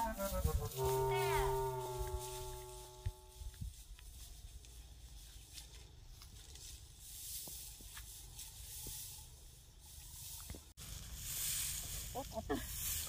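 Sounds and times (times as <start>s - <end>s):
dry grass rustling: 0.0s - 13.0s.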